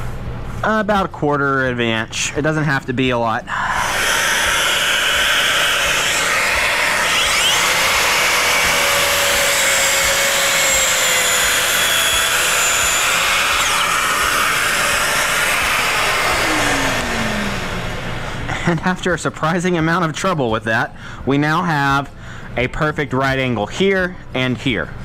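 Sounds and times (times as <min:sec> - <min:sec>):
dust extractor running: 0:03.4 - 0:19.0
circular saw cutting plywood: 0:03.5 - 0:18.5.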